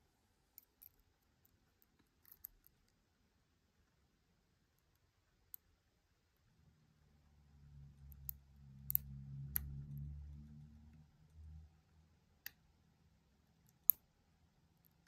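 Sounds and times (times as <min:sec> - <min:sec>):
faint low hum: 0:00.0 - 0:15.0
sharp metallic lock pick clicks: 0:08.2 - 0:09.6.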